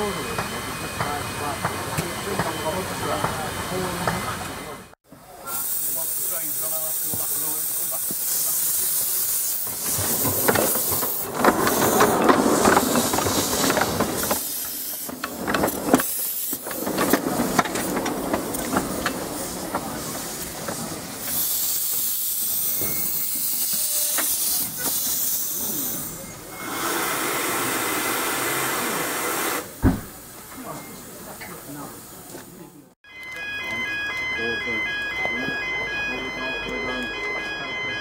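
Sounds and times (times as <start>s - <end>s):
steam locomotive hissing: 0.0s - 30.4s.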